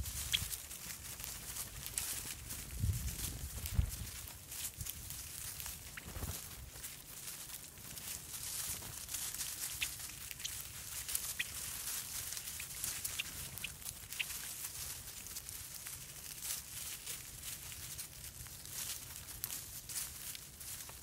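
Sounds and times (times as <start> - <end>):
birds pecking seed: 0.0 - 21.0
high bird chip calls: 0.1 - 0.6, 9.4 - 14.6.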